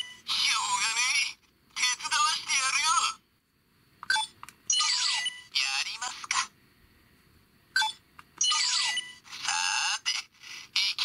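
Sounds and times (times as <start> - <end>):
toy phone key beeps: 7.8 - 9.2.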